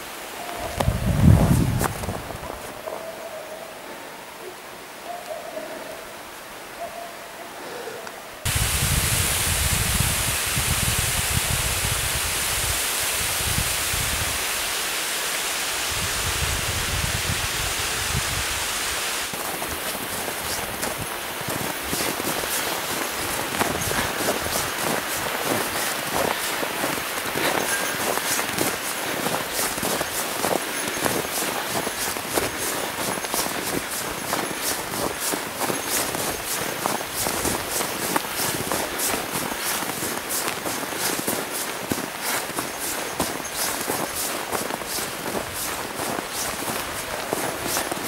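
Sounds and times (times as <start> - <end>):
footsteps crunching in snow: 0.0 - 3.0, 19.3 - 48.0
rushing stream water: 0.0 - 3.0, 8.3 - 48.0
steady hiss: 6.0 - 48.0.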